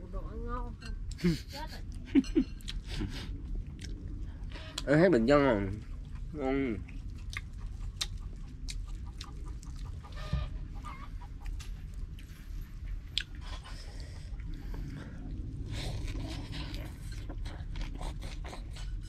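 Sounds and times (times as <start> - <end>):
low steady rumble: 0.0 - 19.0
chickens clucking: 7.5 - 12.0.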